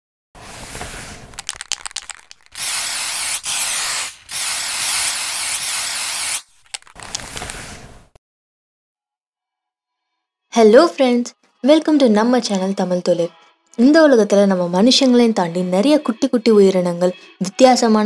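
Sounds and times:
spray can hissing: 0:00.4 - 0:07.8
spray can rattling: 0:00.5 - 0:07.6.

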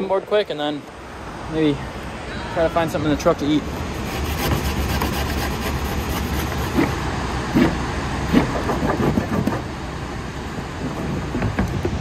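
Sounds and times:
wax rubbed on a board: 0:03.9 - 0:07.0
wind rumble on microphone: 0:10.5 - 0:12.0.

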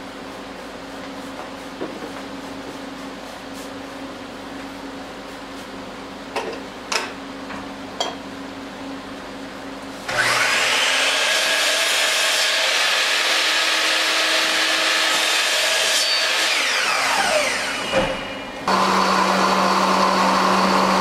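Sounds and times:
power tool working on wood: 0:10.1 - 0:21.0.

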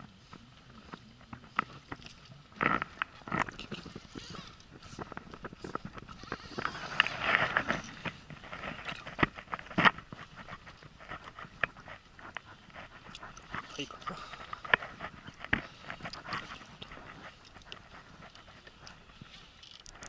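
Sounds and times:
fishing rod and reel clicks: 0:18.2 - 0:20.0.

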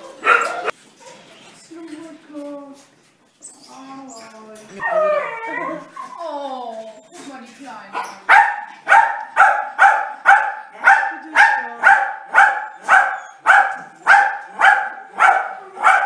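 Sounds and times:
dog barking: 0:00.2 - 0:00.7, 0:07.9 - 0:16.0.

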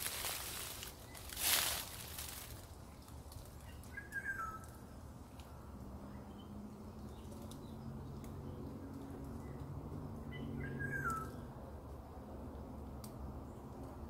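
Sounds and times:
dry leaves rustling: 0:00.0 - 0:04.9
bird chirping: 0:02.8 - 0:04.9, 0:10.2 - 0:11.4.

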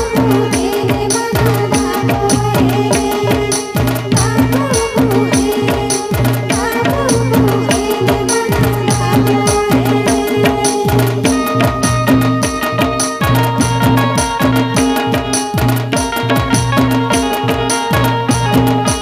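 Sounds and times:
fast drum beat: 0:00.0 - 0:19.0.

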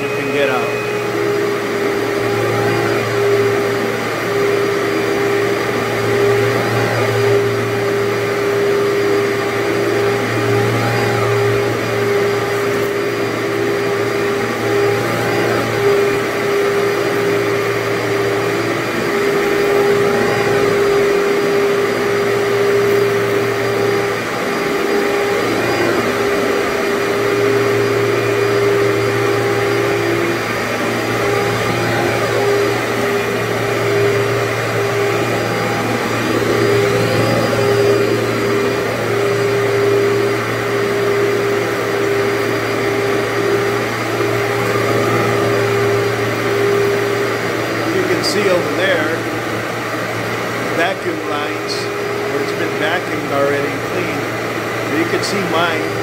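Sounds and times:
vacuum cleaner on carpet: 0:00.0 - 0:56.0.

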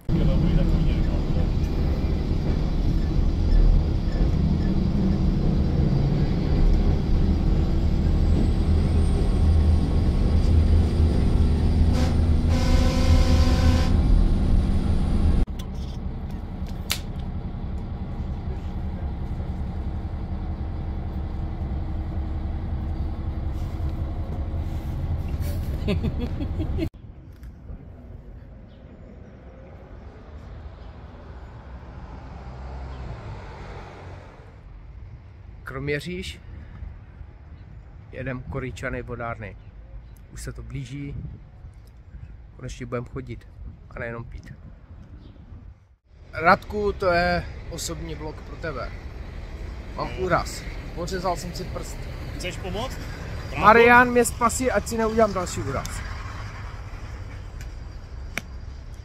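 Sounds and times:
bus engine rumbling: 0:00.0 - 0:59.0
train running noise inside carriage: 0:00.1 - 0:26.8.

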